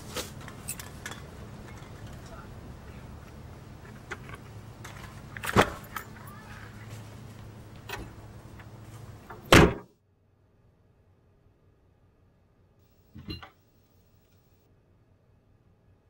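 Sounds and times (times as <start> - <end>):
steady low hum: 0.0 - 9.8.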